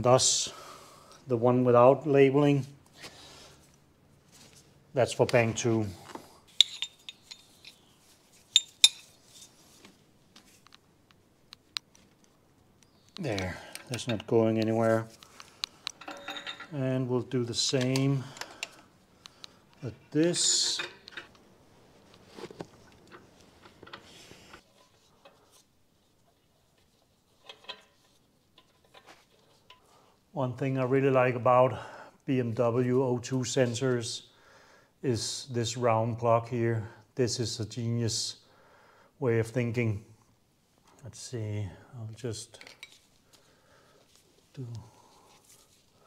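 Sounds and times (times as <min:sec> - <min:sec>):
metal hand tools clinking: 0:06.5 - 0:07.8, 0:08.5 - 0:09.2, 0:15.9 - 0:16.8, 0:20.3 - 0:21.3.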